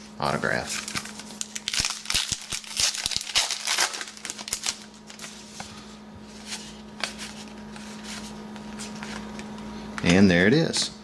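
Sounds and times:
wrapper crinkling: 0.4 - 5.5.

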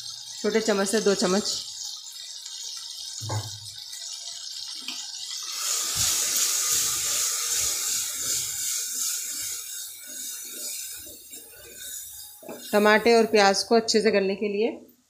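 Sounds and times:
food sizzling in hot oil: 0.0 - 13.9
spoon scraping and knocking pot: 6.0 - 13.0.

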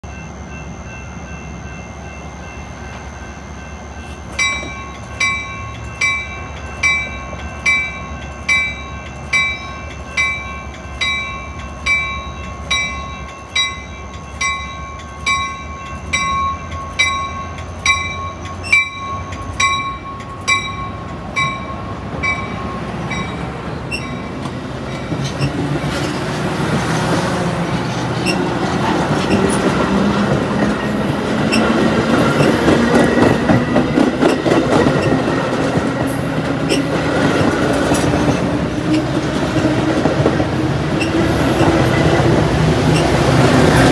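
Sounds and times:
bell ringing: 0.0 - 25.5
train rumbling past: 0.0 - 43.9.

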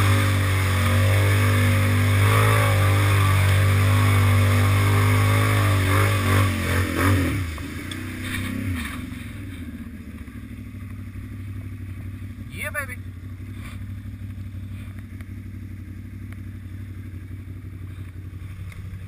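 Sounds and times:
atv engine revving: 0.0 - 19.0
vehicle churning through mud and water: 0.0 - 19.0.

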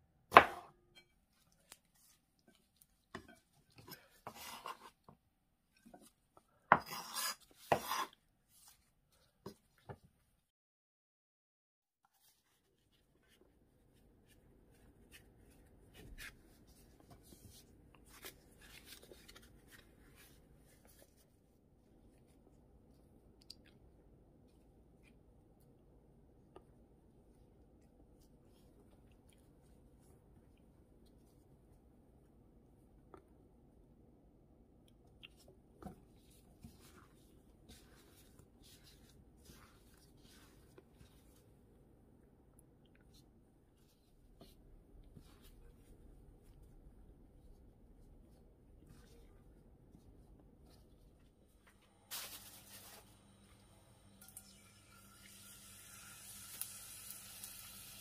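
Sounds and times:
gloved hands rustling in cornstarch: 36.1 - 41.7, 52.1 - 53.2.

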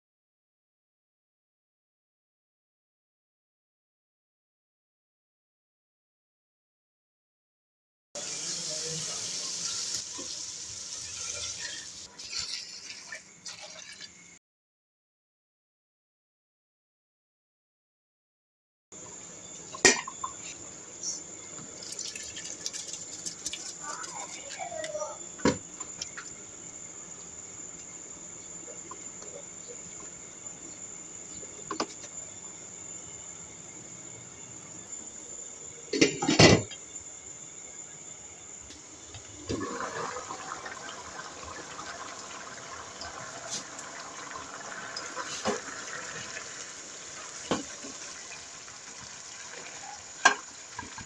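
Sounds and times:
hissing sizzle of frying: 8.2 - 14.4, 19.0 - 51.0
liquid pouring and splashing: 11.0 - 14.3, 21.7 - 24.7, 39.5 - 51.0
faint bubbling: 39.4 - 51.0.

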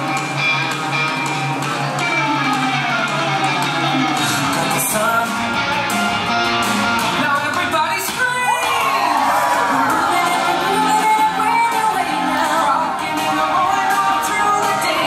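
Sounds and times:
upbeat music with guitar: 0.0 - 15.0
person singing: 2.2 - 6.0, 7.0 - 15.0.

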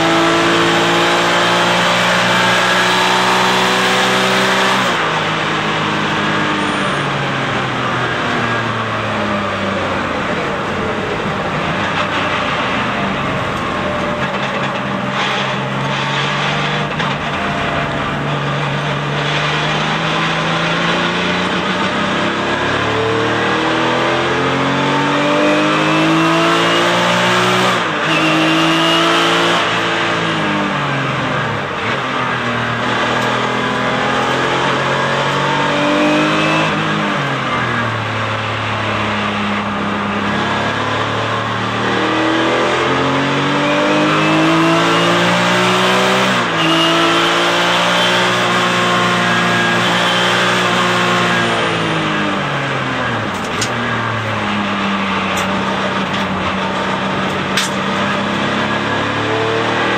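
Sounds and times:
race car engine with upshifts: 0.0 - 59.9.

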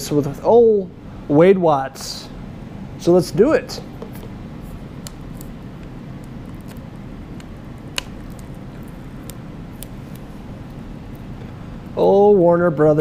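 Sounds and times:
plastic wrap crinkling: 4.1 - 11.4.

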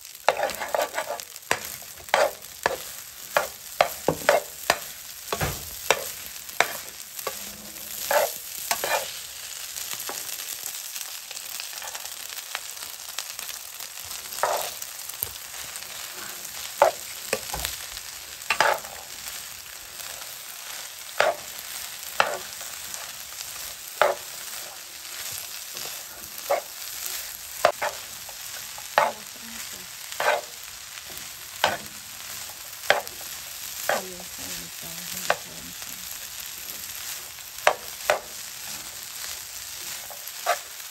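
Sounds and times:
rice sizzling in a frying pan: 0.0 - 40.9
metal spatula scraping a pan: 0.2 - 9.3, 14.3 - 17.7, 18.4 - 19.2, 20.0 - 33.2, 39.9 - 40.9.

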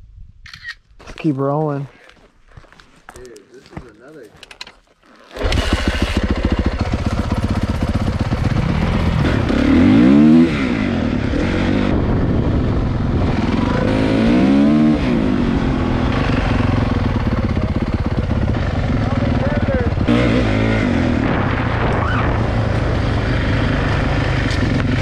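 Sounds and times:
dirt bike engine revving: 5.3 - 25.0.

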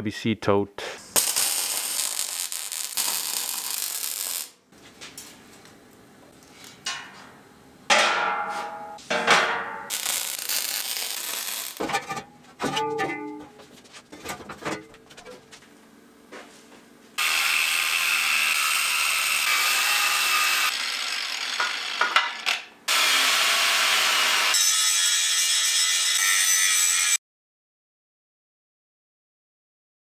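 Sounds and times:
welding arc crackling and hissing: 1.0 - 4.6, 9.9 - 11.8, 17.2 - 21.6
steel plates clanking: 7.9 - 13.6.

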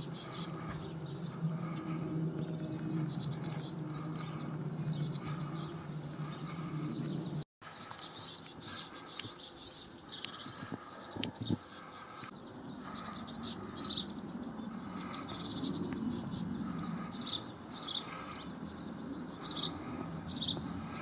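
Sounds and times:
high-pitched bird chirping: 0.0 - 7.4
steady low hum: 0.0 - 7.4, 11.8 - 21.0.

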